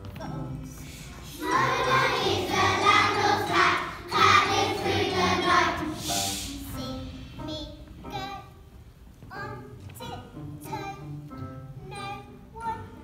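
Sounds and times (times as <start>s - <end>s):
backing music: 0.0s - 13.0s
children's choir singing: 0.6s - 8.4s.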